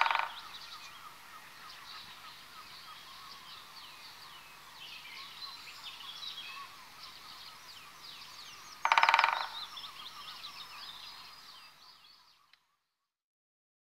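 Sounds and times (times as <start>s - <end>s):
woodpecker rapid rattle: 0.0s - 0.5s, 8.8s - 9.6s
songbirds chirping and trilling: 0.0s - 13.0s.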